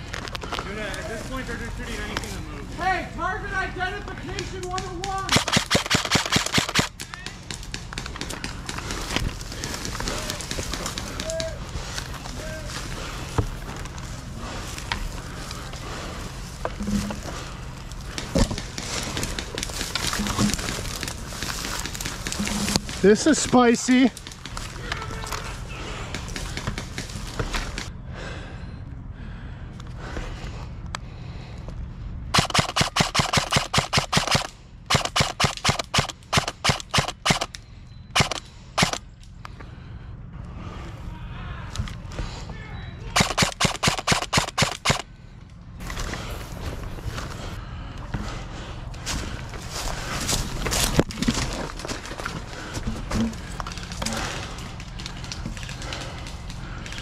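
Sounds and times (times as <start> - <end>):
reeds snapping: 4.6 - 12.5, 17.8 - 25.5, 53.4 - 57.0
airsoft rifle shots: 4.8 - 9.0, 32.3 - 37.5, 38.1 - 39.0, 43.1 - 45.1
footsteps through dry grass: 8.6 - 25.7, 45.6 - 57.0.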